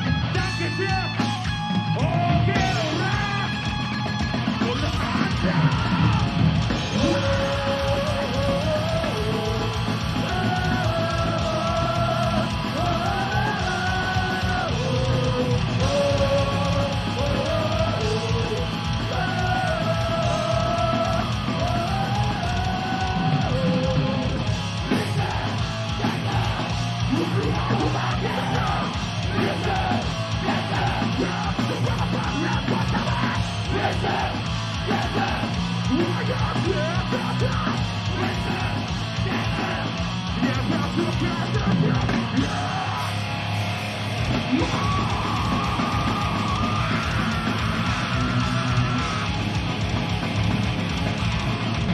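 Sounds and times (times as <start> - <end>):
heavy metal band playing live: 0.0 - 51.9
yelled vocals: 0.0 - 51.9.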